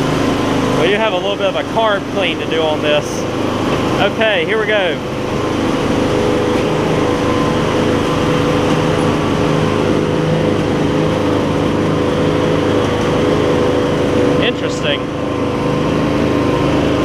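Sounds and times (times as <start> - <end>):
garden tractor engine running: 0.0 - 17.0
person talking: 4.0 - 5.0, 14.4 - 15.1.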